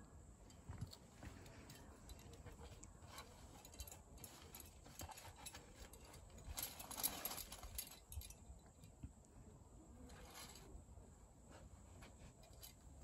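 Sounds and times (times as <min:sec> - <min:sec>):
metal climbing gear clinking: 0:00.4 - 0:09.0, 0:10.1 - 0:10.7, 0:12.0 - 0:13.0.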